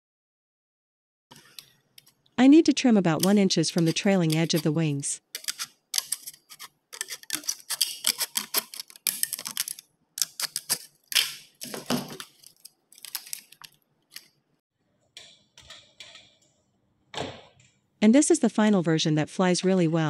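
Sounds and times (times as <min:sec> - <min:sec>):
scissors cutting thin metal: 0:03.2 - 0:14.3.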